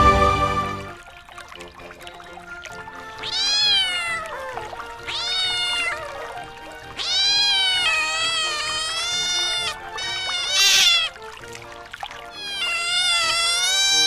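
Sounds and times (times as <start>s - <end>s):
cat meowing: 3.2s - 11.2s, 12.3s - 14.0s.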